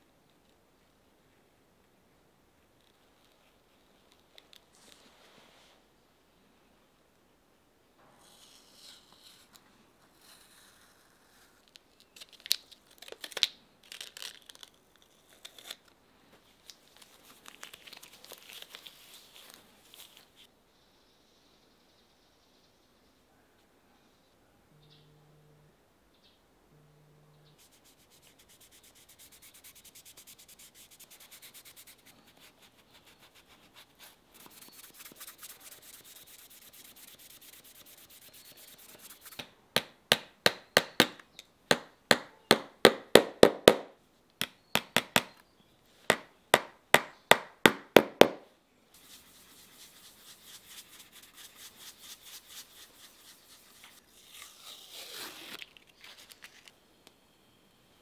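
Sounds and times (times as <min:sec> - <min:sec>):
rubbing on shoe sole: 0:27.5 - 0:39.5, 0:49.0 - 0:54.3.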